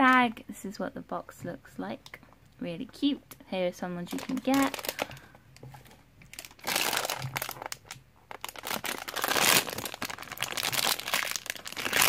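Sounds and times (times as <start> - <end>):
foil bag crinkling: 4.1 - 5.3, 6.3 - 12.0.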